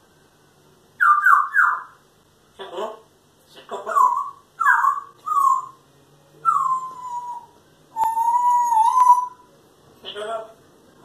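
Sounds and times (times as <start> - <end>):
parrot whistling calls: 1.0 - 2.0, 3.7 - 5.8, 6.4 - 9.5.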